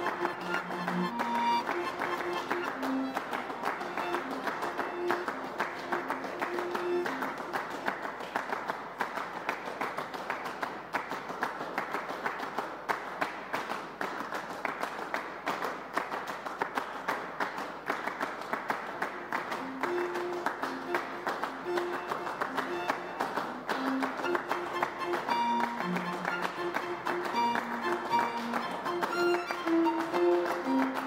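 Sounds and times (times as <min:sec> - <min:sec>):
held musical notes: 0:00.0 - 0:07.8, 0:19.4 - 0:31.0.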